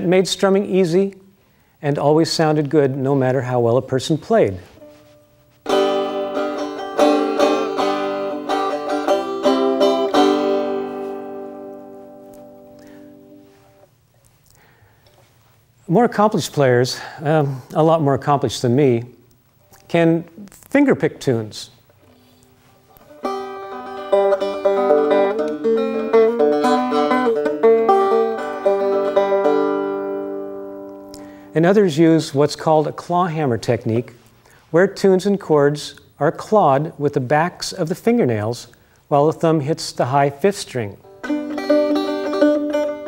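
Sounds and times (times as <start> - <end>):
banjo strummed: 4.7 - 13.6, 22.9 - 31.4, 41.0 - 43.0.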